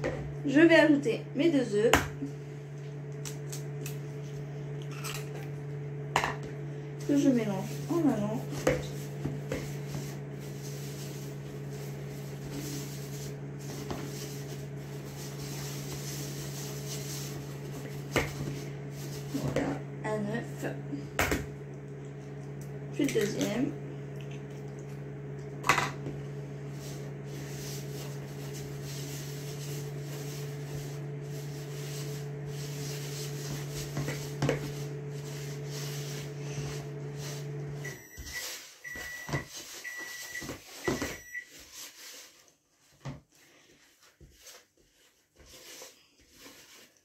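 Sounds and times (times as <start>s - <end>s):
microwave oven humming: 0.0s - 41.6s
utensil scraping plastic bowl: 7.0s - 19.8s, 26.7s - 37.5s
microwave beeps: 37.8s - 41.5s.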